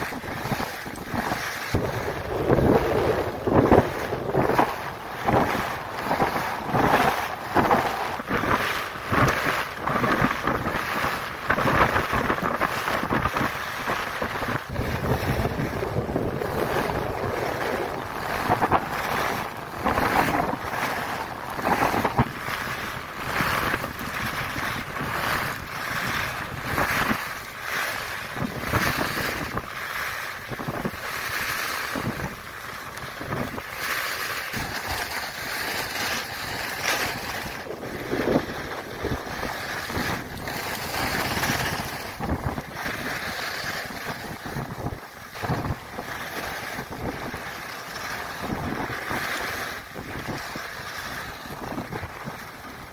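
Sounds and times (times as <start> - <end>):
wind rushing over microphone: 0.0 - 52.9
skis scraping on snow: 34.1 - 44.7.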